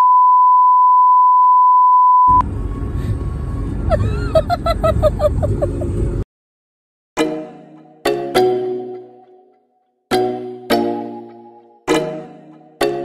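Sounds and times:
car cabin rumble: 2.4 - 6.2
high giggling: 3.9 - 6.0.

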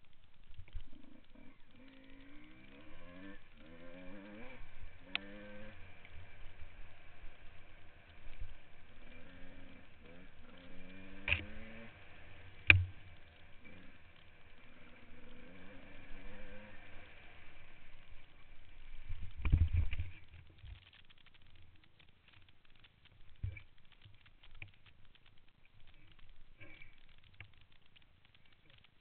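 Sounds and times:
dirt bike engine revving: 0.8 - 19.4.

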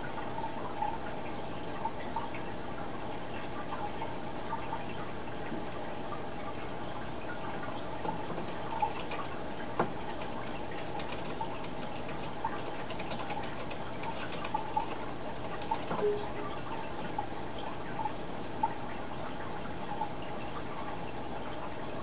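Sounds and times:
aquarium hiss and hum: 0.0 - 22.0
faint ticks and clicks: 7.4 - 16.1.

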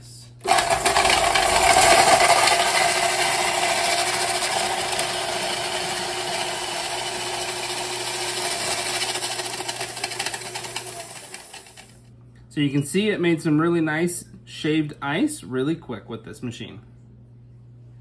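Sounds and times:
mixer motor hum: 0.4 - 12.0.

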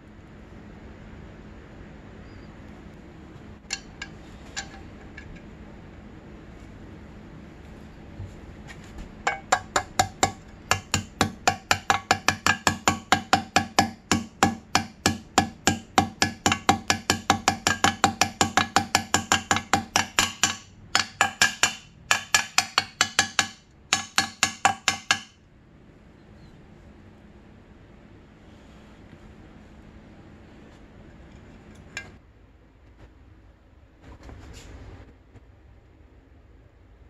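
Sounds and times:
hammer tapping metal: 3.6 - 5.4, 9.2 - 25.4.

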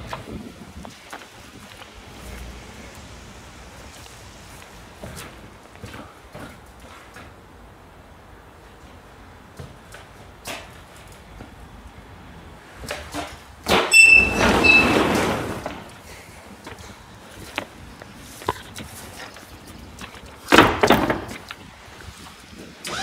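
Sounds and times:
light steps and knocks: 0.0 - 12.1, 12.8 - 22.7
high metallic ring: 13.9 - 15.0.

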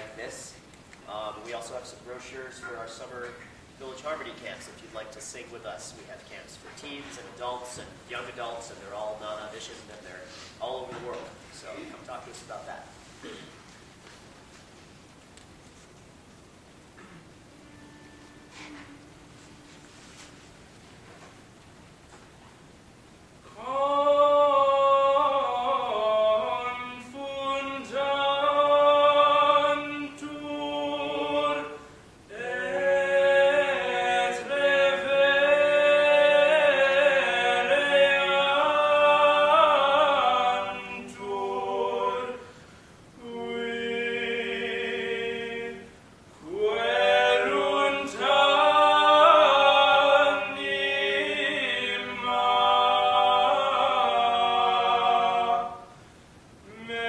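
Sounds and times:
mixed choir singing a cappella: 23.6 - 42.6, 43.2 - 56.0.

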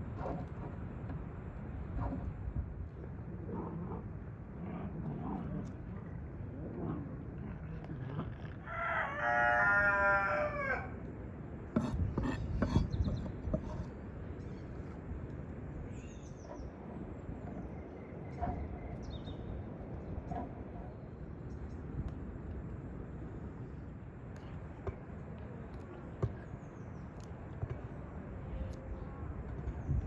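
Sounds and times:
rooster crowing: 8.6 - 11.0.

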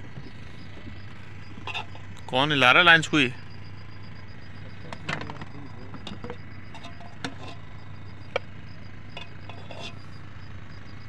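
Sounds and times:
steady low hum: 0.0 - 11.0
spoon and plates clinking: 1.7 - 2.0, 5.4 - 7.6, 9.2 - 10.1.

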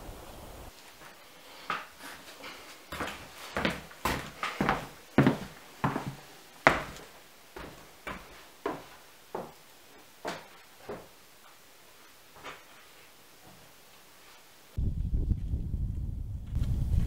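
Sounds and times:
rubber boots on wooden floor: 1.0 - 11.6, 12.4 - 13.8.

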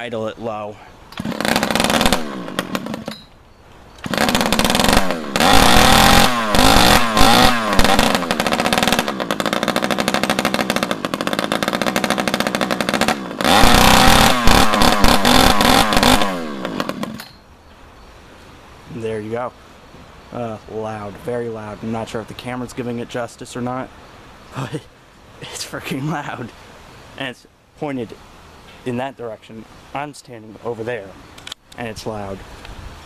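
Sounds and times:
loud unmuffled two-stroke engine revving: 1.2 - 3.2, 4.0 - 17.2.

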